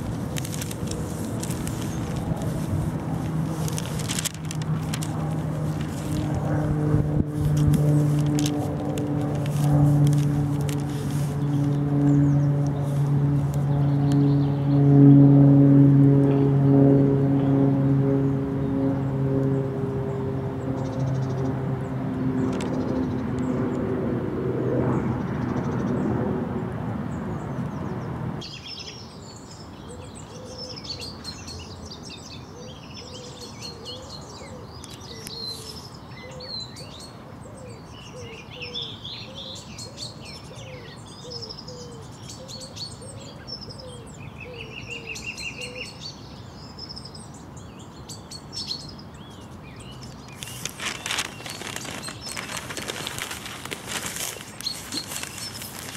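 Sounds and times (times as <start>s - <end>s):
steady low hum: 0.0s - 28.4s
songbirds chirping and singing: 27.7s - 55.9s.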